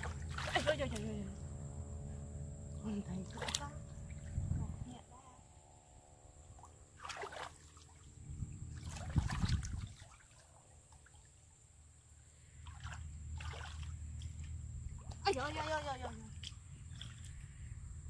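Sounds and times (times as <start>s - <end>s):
hands splashing in muddy water: 7.0s - 8.0s, 8.8s - 11.2s, 12.6s - 15.8s.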